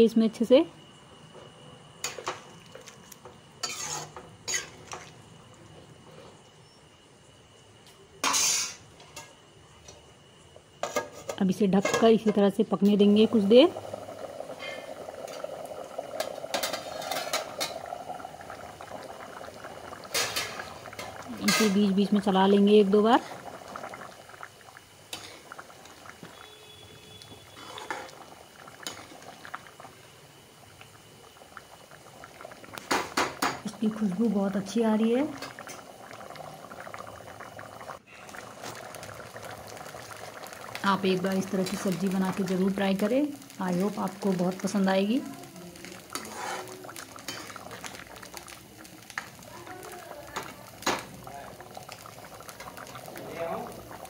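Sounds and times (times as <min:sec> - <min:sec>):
ladle scraping a pan: 0:03.6 - 0:05.0, 0:08.2 - 0:08.8, 0:16.5 - 0:17.7, 0:46.2 - 0:47.6
thick gravy bubbling: 0:12.2 - 0:54.0.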